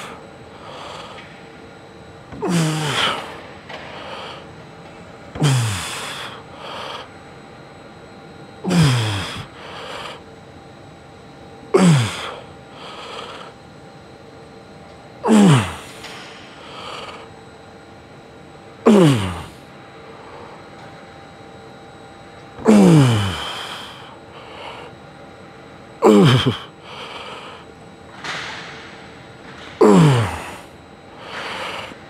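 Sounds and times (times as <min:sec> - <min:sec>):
person grunting with effort: 0:02.4 - 0:03.3, 0:05.4 - 0:06.4, 0:08.6 - 0:10.0, 0:11.8 - 0:12.4, 0:15.2 - 0:15.9, 0:18.9 - 0:19.6, 0:22.6 - 0:24.8, 0:26.0 - 0:27.2, 0:29.8 - 0:30.7
person breathing quickly: 0:05.4 - 0:07.1, 0:08.7 - 0:10.2, 0:11.8 - 0:13.6, 0:22.8 - 0:25.0, 0:26.3 - 0:27.7, 0:31.2 - 0:32.0.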